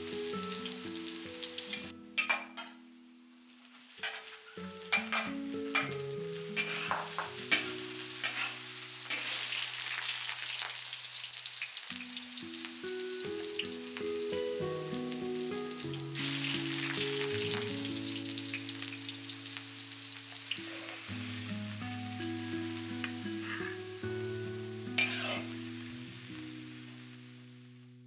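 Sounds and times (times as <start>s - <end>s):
soft background music: 0.0s - 9.8s, 12.0s - 28.0s
food sizzling in a wok: 0.0s - 28.0s
utensil clinking against wok: 2.2s - 2.8s, 6.6s - 9.3s.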